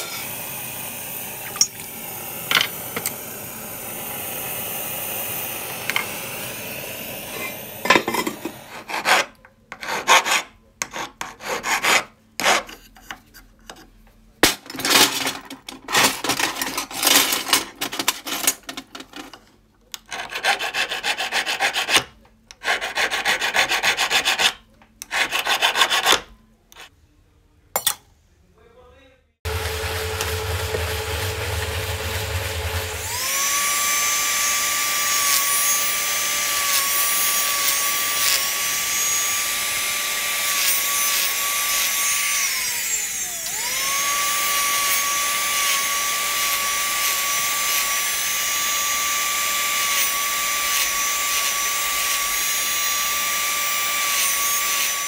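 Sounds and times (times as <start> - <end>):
file rasping on metal: 8.7 - 13.8, 20.1 - 26.9.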